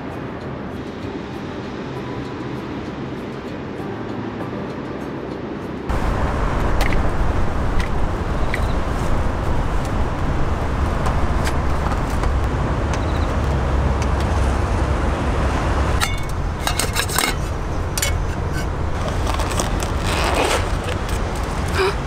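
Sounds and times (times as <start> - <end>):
low rumble of road traffic: 0.0 - 22.0
plastic packaging crackling: 19.0 - 21.7.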